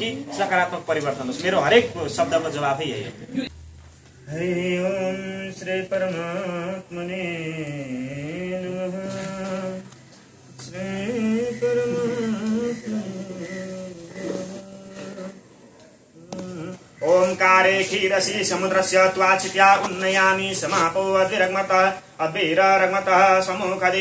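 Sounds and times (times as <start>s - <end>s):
man chanting: 10.6s - 15.5s, 16.2s - 24.0s.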